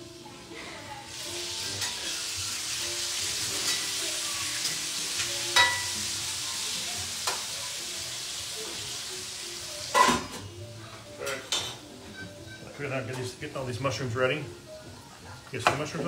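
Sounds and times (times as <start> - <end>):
food sizzling in a pan: 0.0 - 16.0
metal utensil clinking on pan: 5.6 - 6.0.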